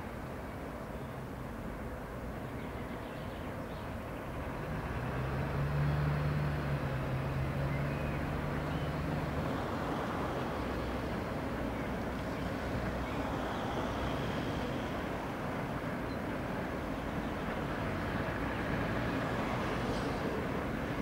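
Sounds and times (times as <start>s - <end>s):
locomotive drone and rumble: 0.0s - 21.0s.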